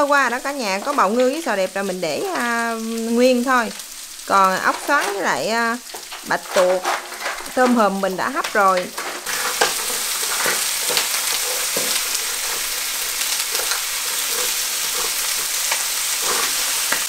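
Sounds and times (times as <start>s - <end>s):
food sizzling in a pan: 0.0s - 17.0s
wooden spatulas clicking and scraping: 4.5s - 17.0s.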